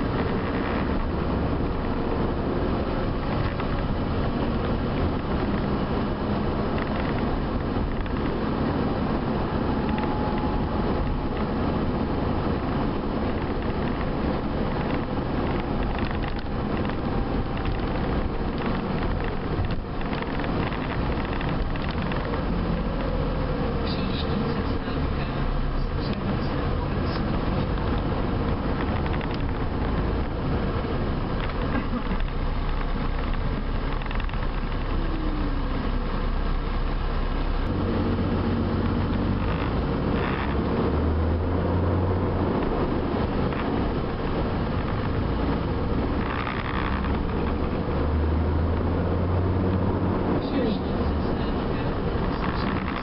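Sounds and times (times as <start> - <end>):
bus diesel engine running: 0.0 - 53.0
road and cabin noise: 0.0 - 53.0.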